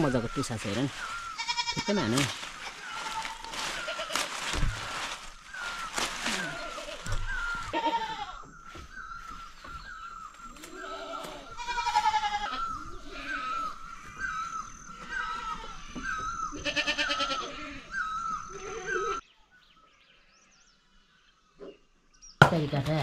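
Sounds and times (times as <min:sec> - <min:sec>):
goats bleating: 0:01.3 - 0:04.4, 0:06.2 - 0:08.5, 0:10.7 - 0:13.8, 0:15.0 - 0:17.9.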